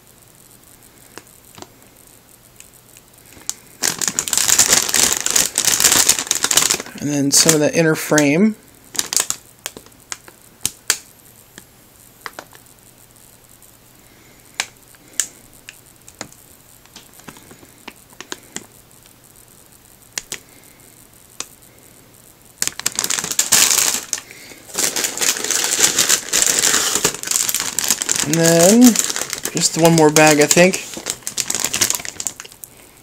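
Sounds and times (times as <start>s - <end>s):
plastic bag crinkling: 3.3s - 8.2s, 8.9s - 10.4s, 22.6s - 32.7s
plastic bags crackling: 3.3s - 8.3s, 8.9s - 10.4s, 16.0s - 18.7s, 22.6s - 33.0s.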